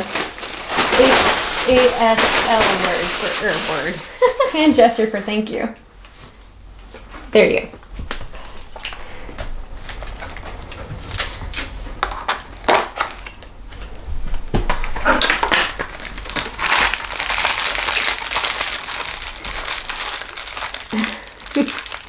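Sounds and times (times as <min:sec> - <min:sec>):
plastic packet crinkling: 0:00.0 - 0:04.7, 0:08.2 - 0:09.2, 0:14.7 - 0:22.0.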